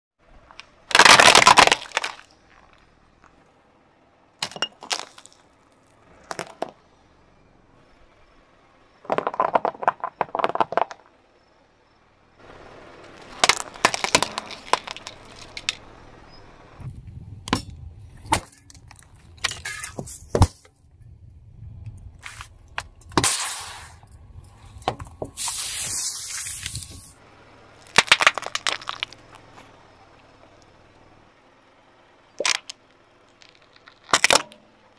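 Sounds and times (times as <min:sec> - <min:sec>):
tyre rumbling on asphalt: 0:00.2 - 0:34.9
plastic cracking under a tyre: 0:00.4 - 0:03.4, 0:04.4 - 0:06.8, 0:09.0 - 0:11.1, 0:13.0 - 0:15.8, 0:18.3 - 0:19.5, 0:27.8 - 0:29.6, 0:32.4 - 0:34.7.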